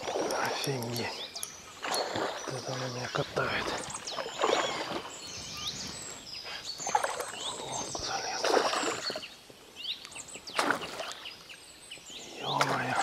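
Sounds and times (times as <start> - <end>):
water splashing: 0.0 - 5.3, 6.8 - 9.3, 10.5 - 11.3, 12.5 - 13.0
small birds chirping: 0.0 - 13.0.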